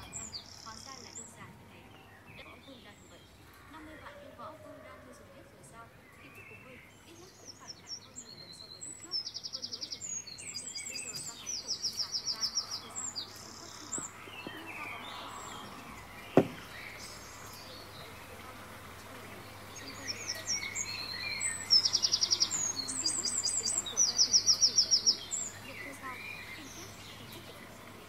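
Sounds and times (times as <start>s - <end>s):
songbirds chirping and trilling: 0.0s - 28.0s
sharp tap: 16.4s - 16.6s.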